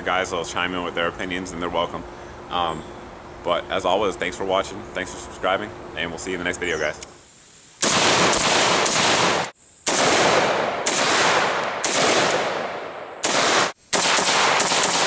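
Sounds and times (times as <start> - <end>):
gunshots with echo: 7.8 - 15.0.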